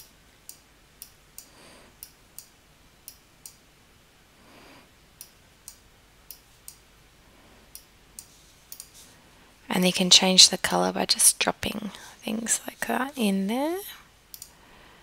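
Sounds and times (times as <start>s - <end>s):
computer mouse clicking: 5.2s - 6.8s, 7.7s - 9.0s, 14.3s - 14.6s.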